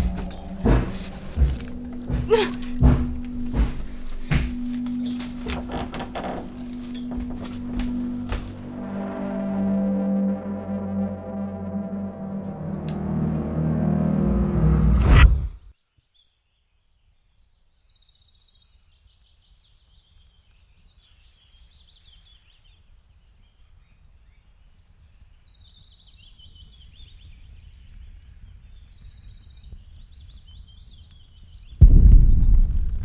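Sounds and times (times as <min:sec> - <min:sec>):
small birds singing: 0:15.8 - 0:31.8
low steady rumble: 0:31.8 - 0:33.0.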